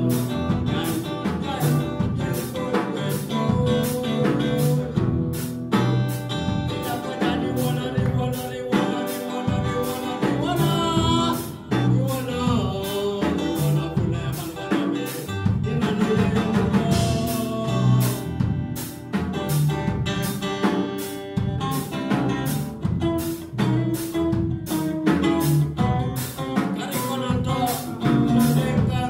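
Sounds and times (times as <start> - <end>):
man singing into microphone: 0.0 - 18.6, 25.3 - 29.0
bass line: 0.0 - 20.7, 21.3 - 29.0
drum kit beat: 0.0 - 29.0
electric guitar: 0.0 - 29.0.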